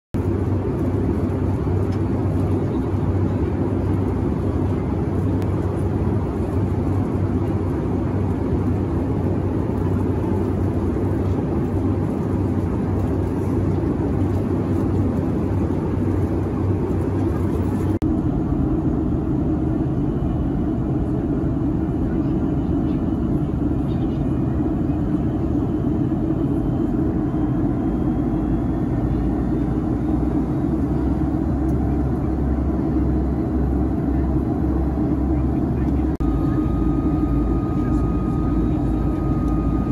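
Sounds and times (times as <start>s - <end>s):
airplane cabin rumble: 0.2s - 39.9s.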